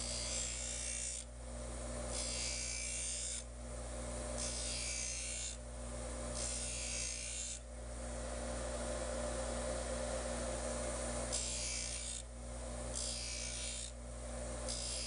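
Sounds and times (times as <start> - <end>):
hissing grind of blade on wheel: 0.0 - 1.3, 2.1 - 3.4, 4.3 - 5.6, 6.3 - 7.6, 11.3 - 12.2, 12.9 - 14.0, 14.7 - 15.0
bench grinder motor humming: 0.0 - 3.5, 4.1 - 15.0.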